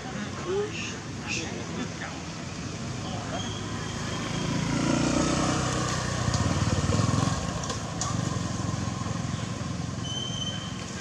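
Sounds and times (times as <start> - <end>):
motorbike passing: 2.3 - 11.0.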